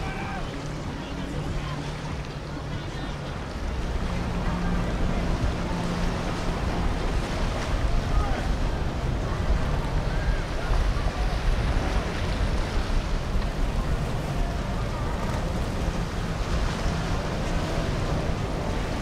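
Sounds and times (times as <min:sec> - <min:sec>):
boat engines rumbling: 0:00.0 - 0:19.0
water washing: 0:00.0 - 0:19.0
wind rush on microphone: 0:00.0 - 0:19.0.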